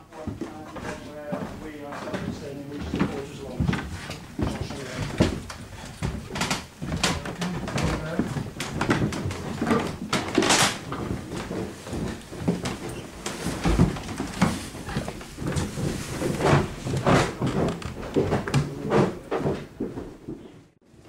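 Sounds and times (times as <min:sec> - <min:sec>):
shuffling footsteps on stone: 0:00.0 - 0:20.8
knocks and clunks: 0:03.0 - 0:20.2.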